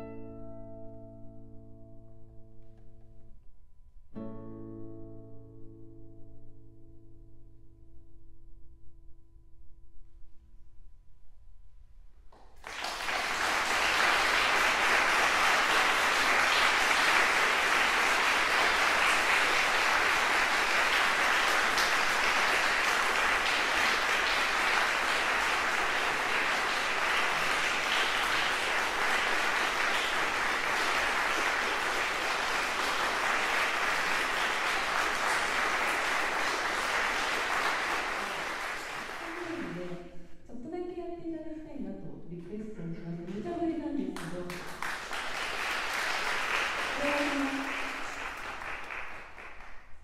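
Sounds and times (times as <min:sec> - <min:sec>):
audience applauding: 0:12.4 - 0:40.0, 0:44.2 - 0:50.0.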